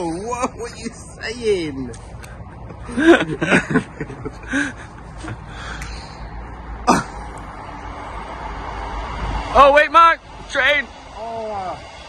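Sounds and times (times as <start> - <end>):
man chuckling and laughing: 2.4 - 5.7
train rumbling: 2.4 - 12.0.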